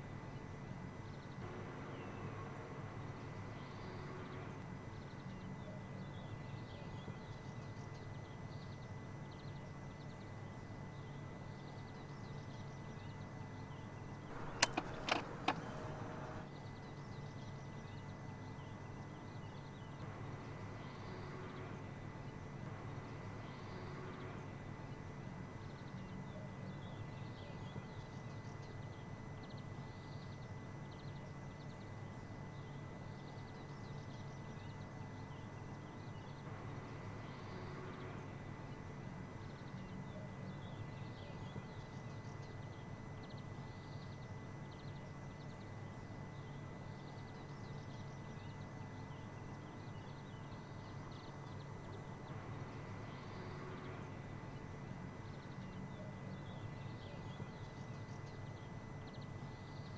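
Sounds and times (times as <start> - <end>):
steady background hum: 0.0 - 59.9
sharp clicks: 14.3 - 16.2.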